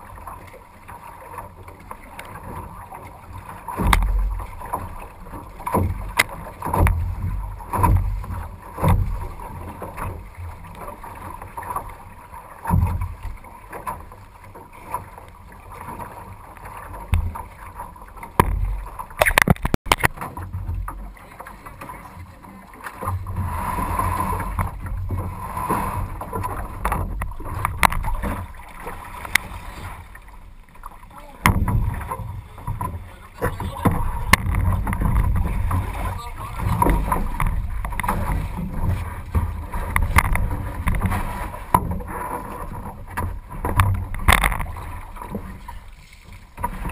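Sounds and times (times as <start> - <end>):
choppy water noise: 0.0 - 46.9
sharp clicks and knocks: 18.3 - 20.4, 26.8 - 28.4, 31.4 - 31.9, 32.7 - 35.8, 39.3 - 42.0, 43.2 - 44.7.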